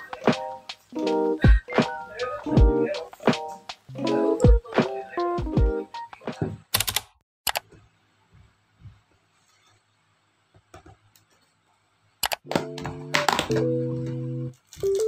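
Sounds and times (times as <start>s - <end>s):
background music with held notes: 0.0s - 6.6s, 12.4s - 15.0s
sharp clicks: 6.7s - 7.6s, 12.2s - 12.4s.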